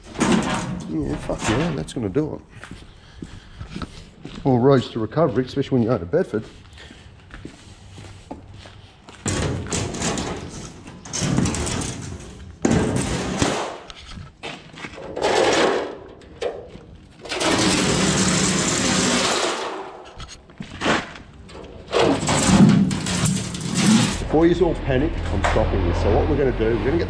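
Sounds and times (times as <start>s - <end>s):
metal sign scraping on concrete: 9.6s - 16.3s, 17.2s - 25.8s.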